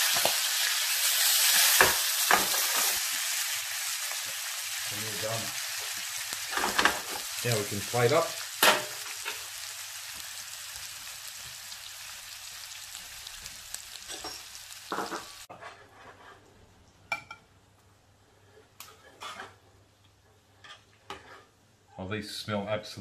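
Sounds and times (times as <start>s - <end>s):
food sizzling in hot oil: 0.0s - 15.5s.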